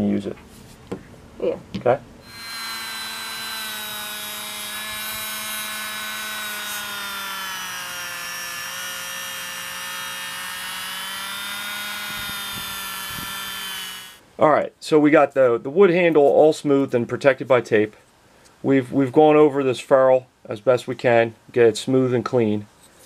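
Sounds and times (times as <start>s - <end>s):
rotary tool motor whine: 2.2s - 14.2s.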